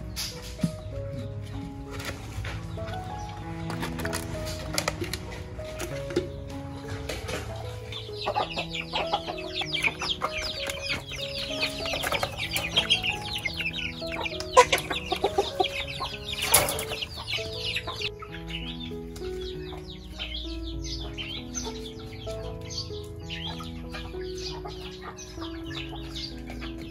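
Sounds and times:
background music with held notes: 0.0 - 26.9
chicks peeping: 0.0 - 26.9.

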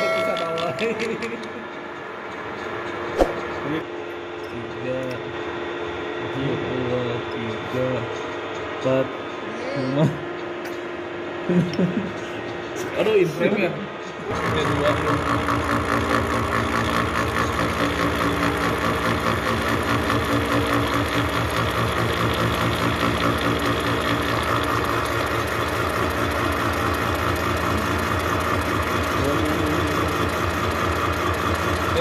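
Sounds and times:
milling machine spindle running: 12.4 - 32.0.

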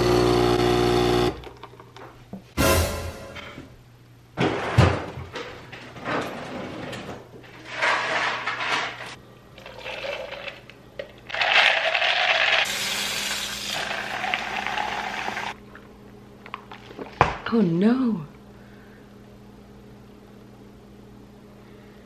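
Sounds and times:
liquid pouring into a tumbler: 9.6 - 15.5
kitchen tap running: 12.2 - 15.6.

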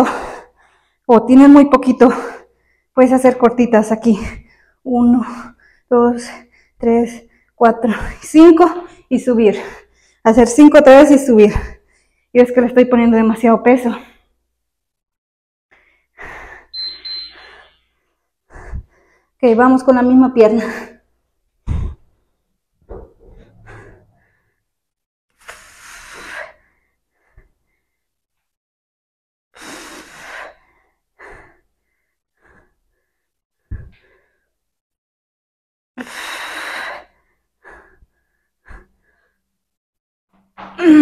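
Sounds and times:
woman breathing hard: 15.7 - 19.4, 22.9 - 24.7, 29.6 - 34.6, 36.0 - 39.5.

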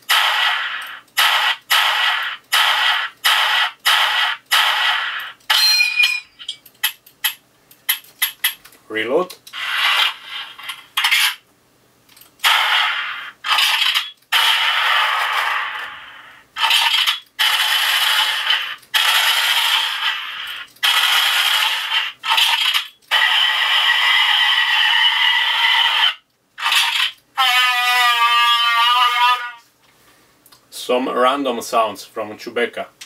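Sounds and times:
gunshot sound effects from small speaker: 0.1 - 5.2.

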